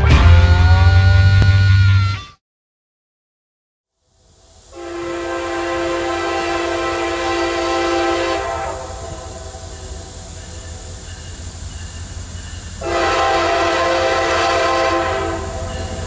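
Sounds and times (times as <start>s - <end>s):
train rumble: 4.2s - 16.0s
locomotive air horn blast: 4.7s - 10.0s, 12.8s - 16.0s.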